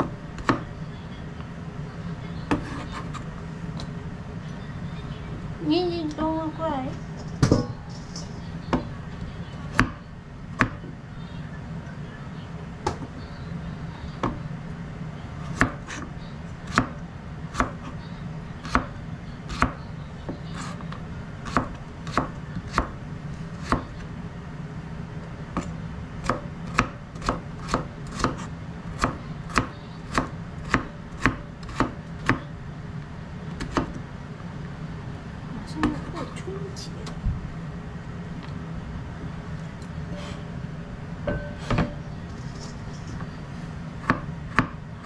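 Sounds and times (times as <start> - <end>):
steady low hum: 0.0 - 45.0
knife chopping on cutting board: 25.6 - 32.4.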